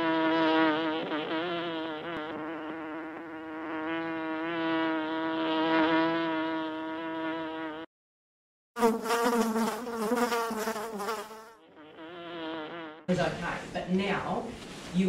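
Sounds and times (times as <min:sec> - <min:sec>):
bees buzzing: 0:00.0 - 0:07.9, 0:08.8 - 0:13.1.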